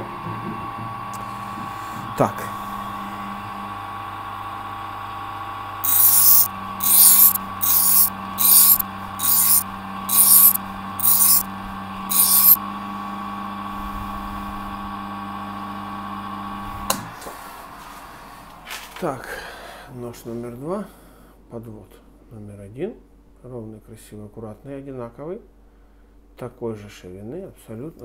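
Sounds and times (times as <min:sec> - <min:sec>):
knife grinding on wheel: 0:05.8 - 0:11.5, 0:12.1 - 0:12.6
sharpening wheel motor humming: 0:05.8 - 0:11.5, 0:12.1 - 0:12.6.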